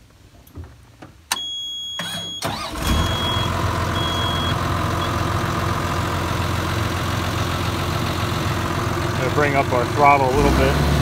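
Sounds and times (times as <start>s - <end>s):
short high beeps: 1.3s - 5.2s
diesel engine starting and idling: 1.3s - 11.0s.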